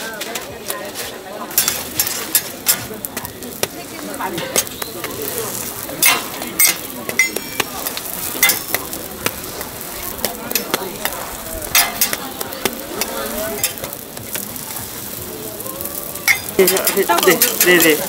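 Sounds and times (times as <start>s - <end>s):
pancakes sizzling in oil: 0.0s - 18.0s
metal spatula clinking on griddle: 1.5s - 9.6s, 10.2s - 14.3s, 16.2s - 18.0s.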